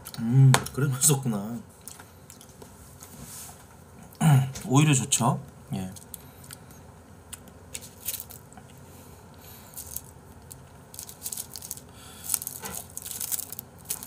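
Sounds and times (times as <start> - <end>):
dried seaweed crackling: 7.7 - 8.7, 9.4 - 14.0.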